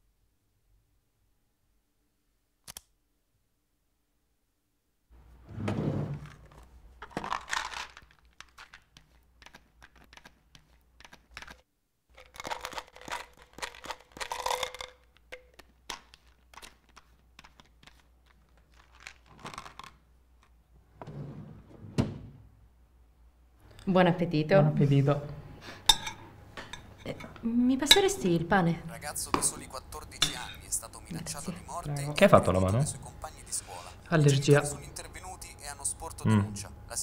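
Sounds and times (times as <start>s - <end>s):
hands crinkling and tearing material: 6.5s - 11.6s, 12.2s - 20.0s.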